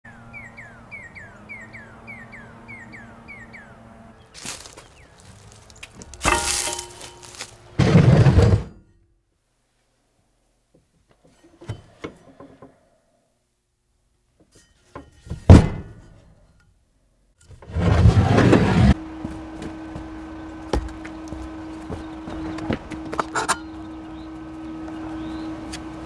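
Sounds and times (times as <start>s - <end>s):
heavy thunk: 15.5s - 16.0s.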